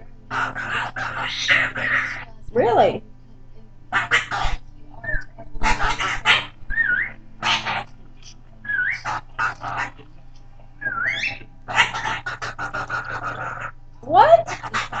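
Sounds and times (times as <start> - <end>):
cockatoo chattering: 0.0 - 3.0, 3.9 - 15.0
cockatoo wavering whistles: 6.0 - 7.8, 8.7 - 10.0, 10.8 - 13.7.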